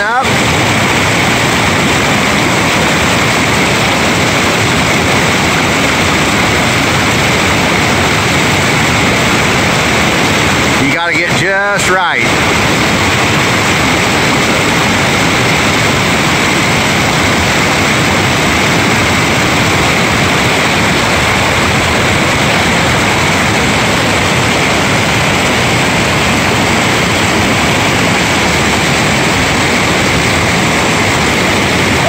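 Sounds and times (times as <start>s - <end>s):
whitewater rushing over boulders: 0.0s - 32.0s.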